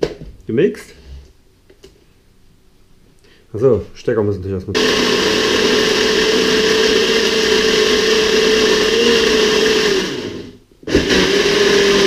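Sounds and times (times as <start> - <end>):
mini blender whining: 4.8 - 12.0.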